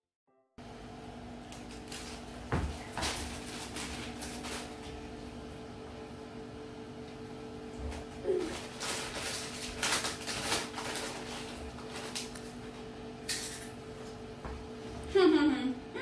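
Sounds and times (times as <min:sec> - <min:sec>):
low electrical hum: 0:00.6 - 0:16.0
crisp packet rustling: 0:01.5 - 0:05.2, 0:07.9 - 0:12.8.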